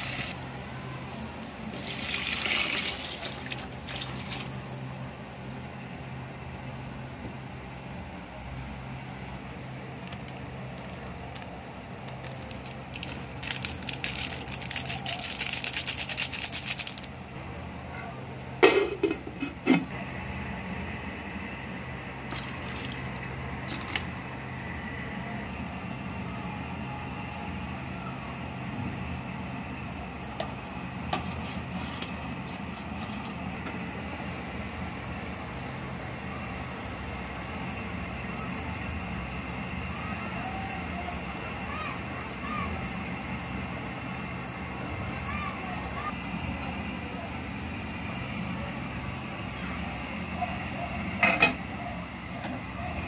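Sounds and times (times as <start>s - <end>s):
peppercorns pouring into pot: 0.0s - 0.4s, 1.7s - 4.6s, 10.1s - 17.3s, 22.3s - 24.2s
plastic sachet crinkling: 10.0s - 17.4s
plastic bottle crackling: 10.1s - 17.2s
steady low hum: 15.6s - 53.0s
lid set on pot: 18.6s - 19.9s.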